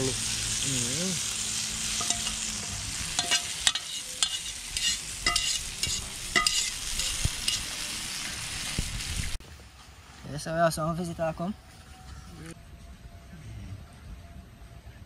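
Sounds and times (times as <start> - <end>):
chicken sizzling in a frying pan: 0.0 - 9.4
metal fork scraping a pan: 3.2 - 7.8.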